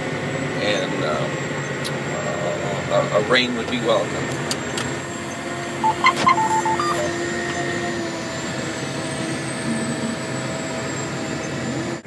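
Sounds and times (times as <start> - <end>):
tractor engine drone: 0.0 - 12.0
short electronic beeps: 5.8 - 7.2
thin high whine: 5.8 - 7.3.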